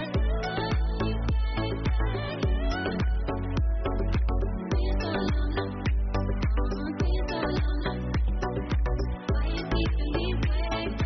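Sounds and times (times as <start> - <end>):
electronic music with steady beat: 0.0 - 11.0.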